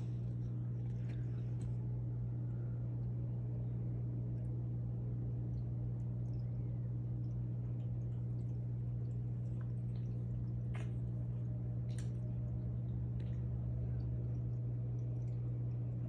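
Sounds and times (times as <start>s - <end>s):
aquarium equipment humming: 0.0s - 16.0s
water drips: 5.2s - 16.0s.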